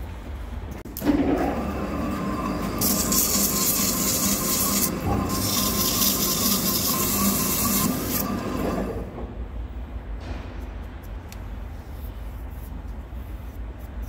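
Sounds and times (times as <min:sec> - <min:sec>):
lathe running: 0:00.9 - 0:09.2.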